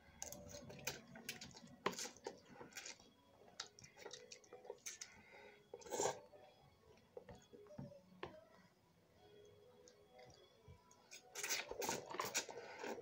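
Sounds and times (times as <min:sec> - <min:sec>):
person chewing noodles: 0:00.2 - 0:06.3, 0:09.9 - 0:13.0
slurping noodles: 0:00.5 - 0:06.3, 0:11.1 - 0:13.0.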